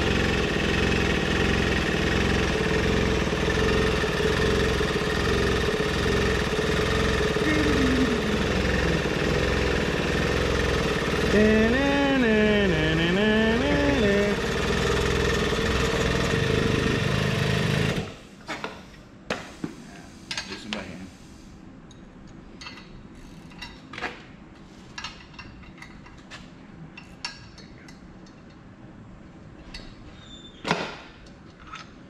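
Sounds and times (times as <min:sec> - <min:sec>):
machine running loudly: 0:00.0 - 0:18.1
tools clicking and knocking: 0:22.3 - 0:24.2, 0:25.0 - 0:26.4, 0:27.0 - 0:28.6, 0:31.2 - 0:32.0.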